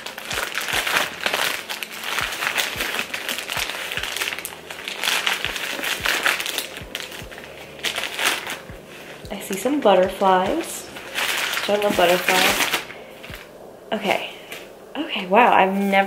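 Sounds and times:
wrapping paper crinkling: 0.0 - 13.5.

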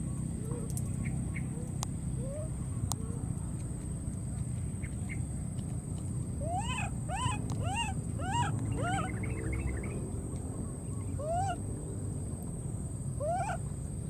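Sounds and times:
animal calling: 6.4 - 10.0, 11.0 - 11.7, 13.2 - 13.7.

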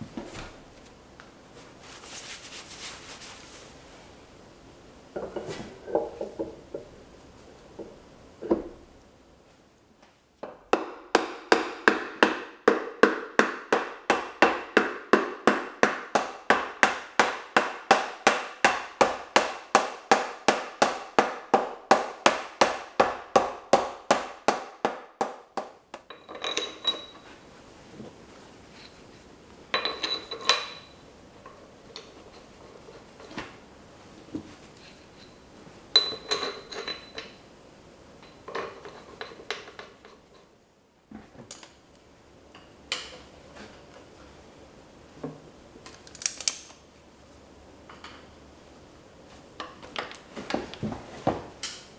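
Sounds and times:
metal clinks with ringing: 26.1 - 27.3, 29.7 - 31.1, 34.8 - 37.5.

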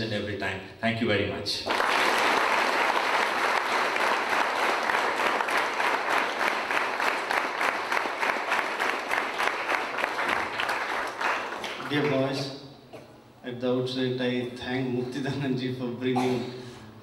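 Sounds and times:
audience applauding: 1.7 - 12.4.

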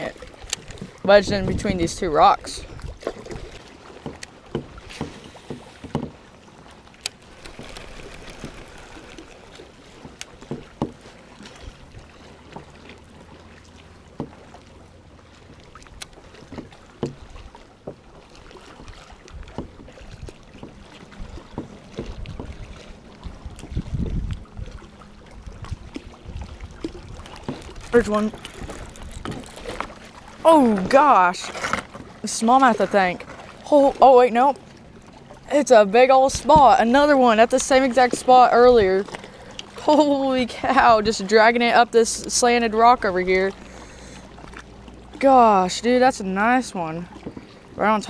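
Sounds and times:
water lapping against hull: 0.0 - 48.0
knocks and clicks on plastic kayak: 4.0 - 6.2, 10.0 - 11.0, 16.4 - 18.0, 19.3 - 20.8, 21.5 - 22.7.

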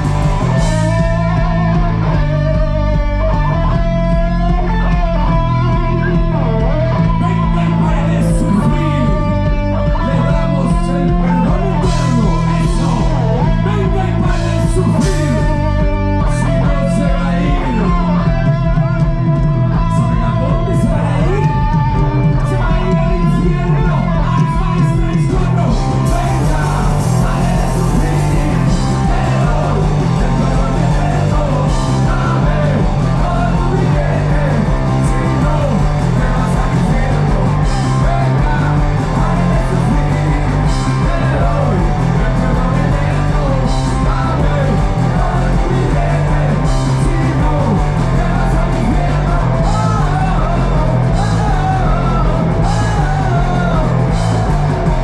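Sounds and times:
bass guitar: 0.0 - 55.0
drums: 0.0 - 55.0
electric guitars: 0.0 - 55.0
person singing: 0.0 - 55.0.

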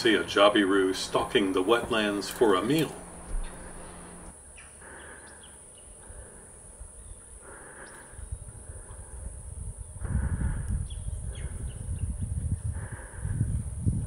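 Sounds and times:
low rumble: 0.8 - 4.3.

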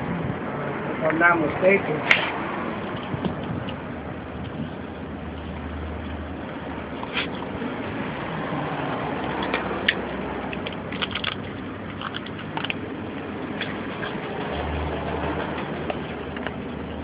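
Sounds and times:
steady background noise: 0.0 - 17.0
dog cracking and chewing nuts: 9.2 - 13.0.

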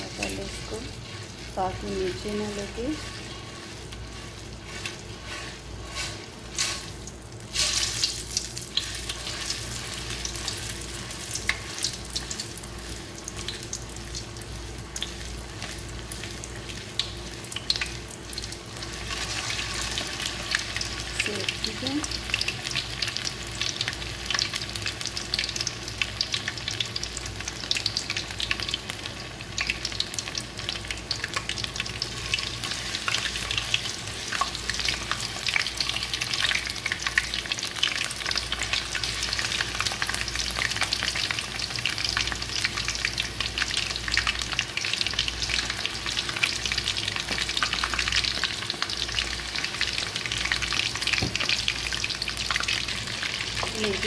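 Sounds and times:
oil sizzling and crackling: 0.0 - 54.0.

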